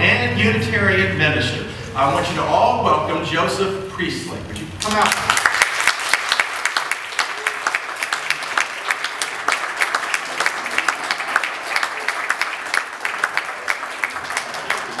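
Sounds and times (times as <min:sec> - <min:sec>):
congregation applauding: 0:04.8 - 0:15.0.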